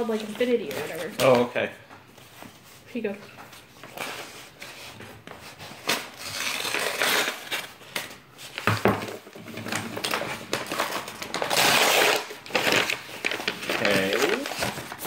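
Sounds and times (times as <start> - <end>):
paper scraping and crinkling: 2.2 - 15.0
paper tearing: 5.6 - 8.2, 10.2 - 15.0.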